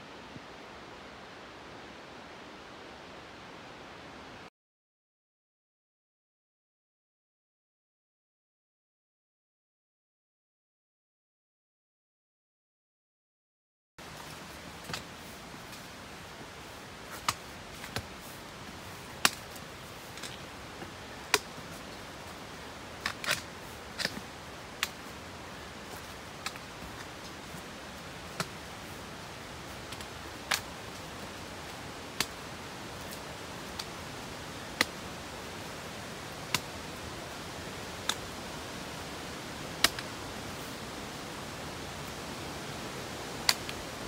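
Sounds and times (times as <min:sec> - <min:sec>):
steady hiss: 0:14.0 - 0:44.0.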